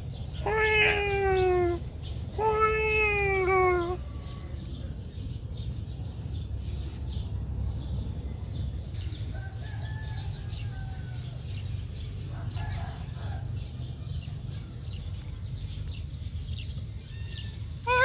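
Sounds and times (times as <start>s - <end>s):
small birds chirping: 0.0s - 18.0s
steady low rumble: 1.1s - 17.9s
faint rooster crow: 9.1s - 13.8s.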